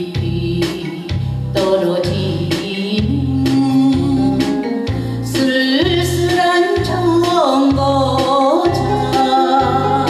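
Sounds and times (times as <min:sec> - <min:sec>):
backing track with bass beat: 0:00.0 - 0:10.0
woman singing into a microphone: 0:00.0 - 0:10.0.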